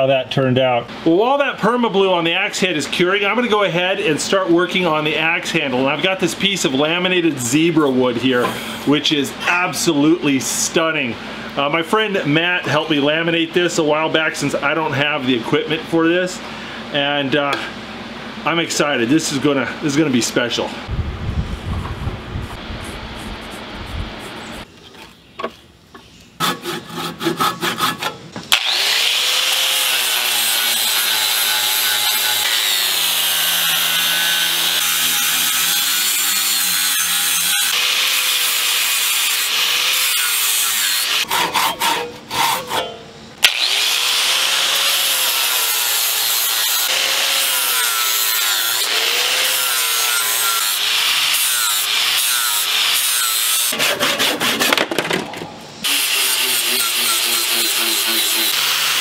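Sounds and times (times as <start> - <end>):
angle grinder grinding wood: 26.4 - 54.8, 55.8 - 59.0.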